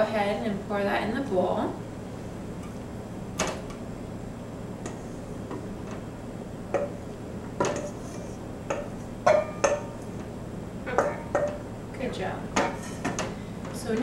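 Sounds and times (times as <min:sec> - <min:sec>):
metal bowl ringing: 0:08.7 - 0:10.0, 0:10.8 - 0:11.6
wooden spoon knocking metal bowl: 0:08.7 - 0:10.0, 0:10.9 - 0:11.6.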